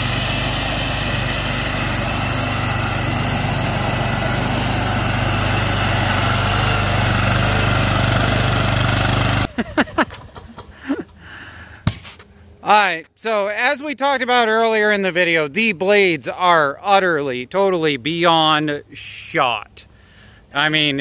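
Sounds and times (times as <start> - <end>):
lawn mower engine running: 0.0 - 12.7.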